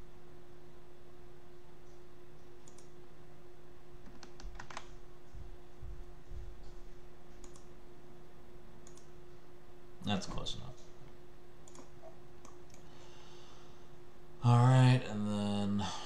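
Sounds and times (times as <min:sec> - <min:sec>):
faint steady hum: 0:00.0 - 0:16.0
computer mouse clicks: 0:01.9 - 0:03.0, 0:04.0 - 0:04.9, 0:07.4 - 0:07.7, 0:08.8 - 0:09.1, 0:11.6 - 0:12.9.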